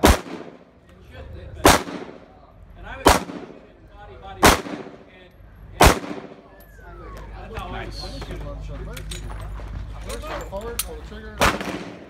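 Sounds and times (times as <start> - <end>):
pistol shots: 0.0 - 0.7, 1.6 - 2.2, 3.0 - 3.6, 4.4 - 5.0, 5.8 - 6.4, 11.4 - 12.0.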